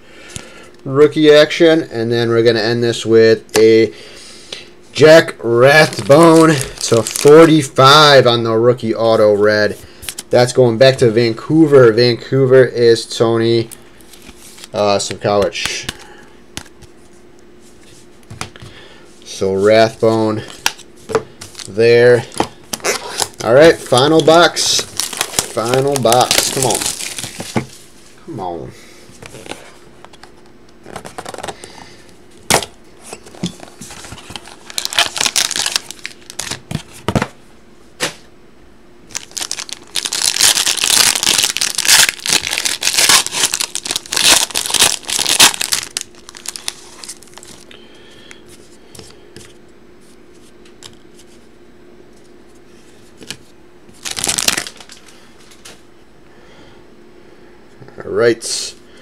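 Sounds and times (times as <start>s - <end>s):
plastic and foil wrapping tearing: 5.8s - 7.7s, 21.6s - 27.5s, 33.9s - 36.6s, 39.1s - 47.6s, 54.0s - 55.0s.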